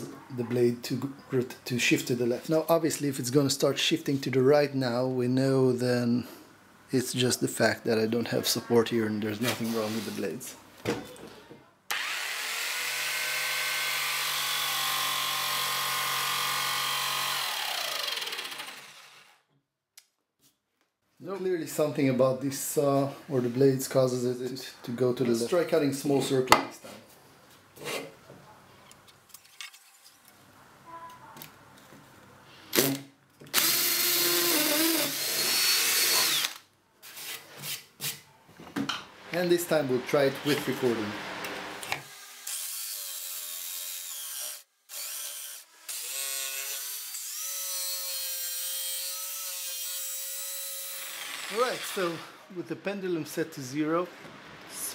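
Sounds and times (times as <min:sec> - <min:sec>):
electric drill whining: 0:11.9 - 0:19.4, 0:33.5 - 0:36.6, 0:50.5 - 0:52.4
jigsaw cutting wood: 0:11.9 - 0:19.4, 0:32.8 - 0:36.6, 0:40.5 - 0:52.4.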